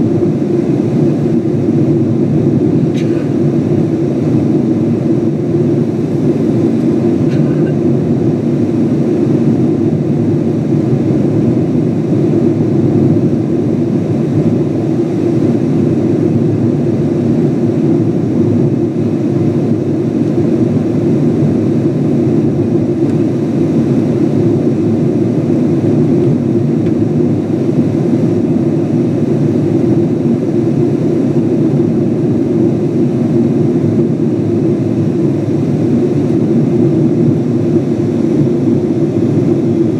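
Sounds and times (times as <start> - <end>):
airplane cabin engine drone: 0.0 - 39.9.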